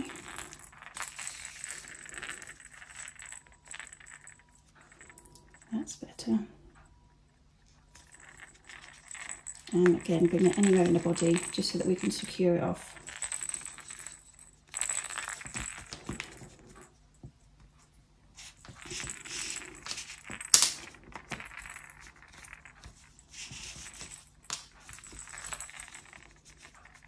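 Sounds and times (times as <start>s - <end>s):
toy rattle rattling: 0.0s - 4.4s, 8.0s - 16.5s, 18.4s - 20.9s.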